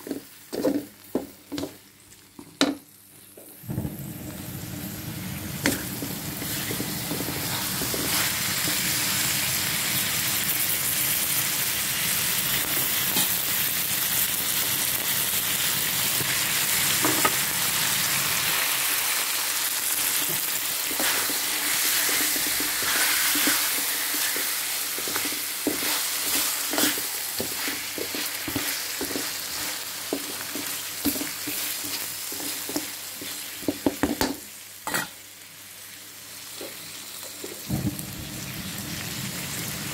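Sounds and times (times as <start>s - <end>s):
spatula scraping and knocking wok: 0.0s - 1.8s, 5.4s - 9.2s, 16.9s - 17.5s, 20.1s - 35.2s
chicken sizzling in a wok: 0.0s - 39.9s.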